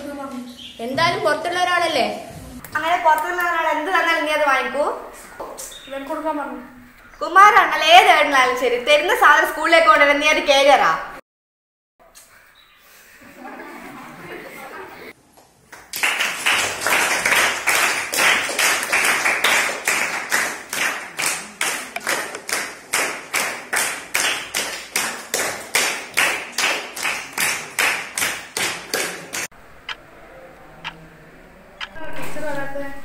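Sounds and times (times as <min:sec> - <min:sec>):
people clapping in unison: 0:15.7 - 0:29.5.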